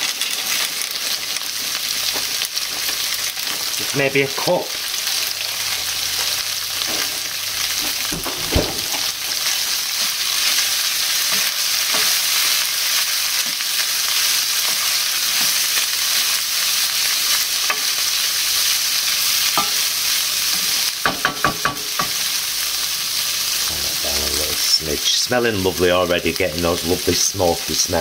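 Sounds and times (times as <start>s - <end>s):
food sizzling in a frying pan: 0.0s - 28.0s
wooden spoon knocking on pan: 21.0s - 22.2s.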